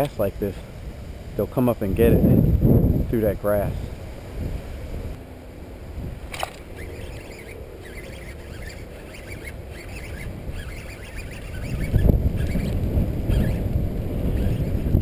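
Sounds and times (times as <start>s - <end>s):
wind rumbling on microphone: 0.0s - 15.0s
birds chirping: 6.2s - 15.0s.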